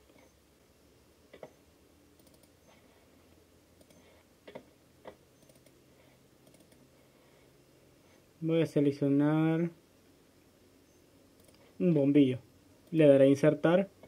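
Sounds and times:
computer mouse clicks: 1.3 - 2.8, 3.8 - 5.8, 6.4 - 6.9, 11.3 - 11.7.

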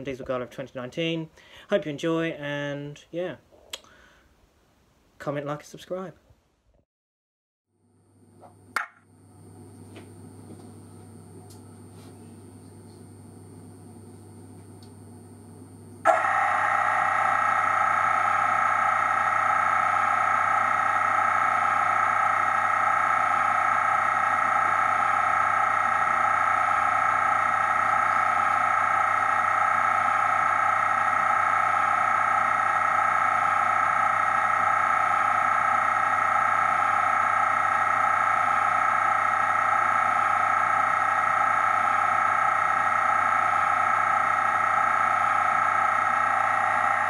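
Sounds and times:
low steady hum: 7.9 - 47.0
model locomotive engine sound: 16.1 - 47.0.

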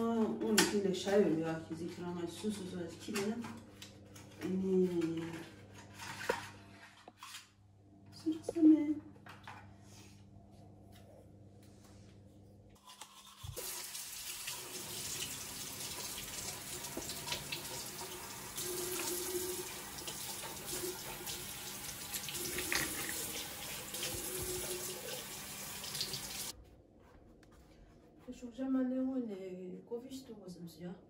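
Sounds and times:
tap running into washbasin: 13.5 - 26.5.

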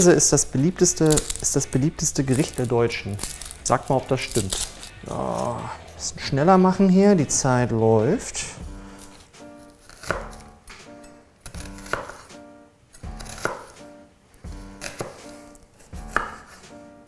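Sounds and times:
background music: 0.0 - 17.0
knife chopping on wooden board: 8.7 - 12.4, 13.0 - 13.9, 14.5 - 16.8.

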